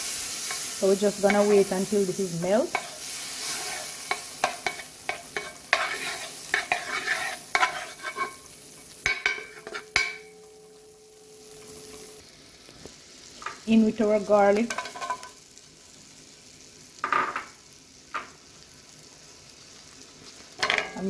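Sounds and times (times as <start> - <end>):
butter sizzling in a pot: 0.0 - 21.0
wooden spoon scraping a pot: 2.7 - 8.4.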